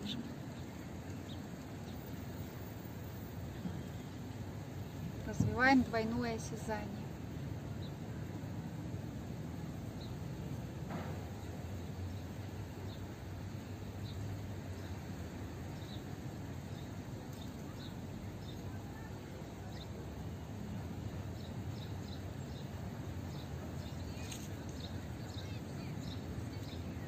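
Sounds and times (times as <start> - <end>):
small birds chirping: 0.0 - 2.8, 3.4 - 7.0, 11.3 - 20.4, 21.2 - 27.0.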